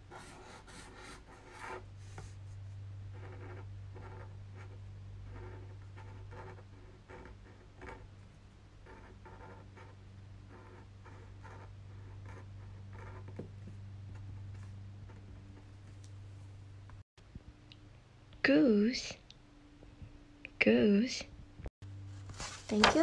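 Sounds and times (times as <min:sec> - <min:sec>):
steady low hum: 0:00.0 - 0:20.6
pen scratching on paper: 0:00.1 - 0:02.3, 0:03.1 - 0:08.1, 0:08.8 - 0:13.5.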